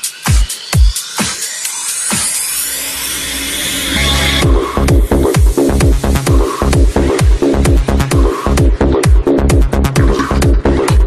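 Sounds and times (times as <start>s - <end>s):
hissing noise sweep: 0.0s - 8.7s
kick drum: 0.3s - 1.4s, 4.4s - 11.0s.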